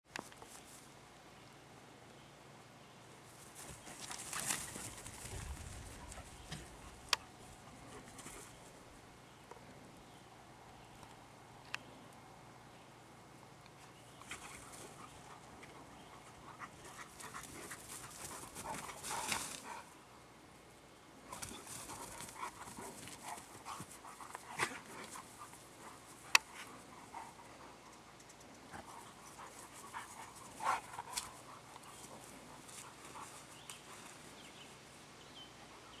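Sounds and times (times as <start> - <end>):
dogs panting: 14.2 - 20.0, 21.3 - 34.5.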